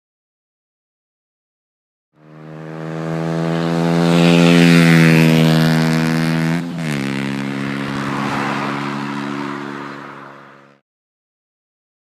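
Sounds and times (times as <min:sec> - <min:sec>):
motorcycle engine riding past: 0:02.2 - 0:10.8.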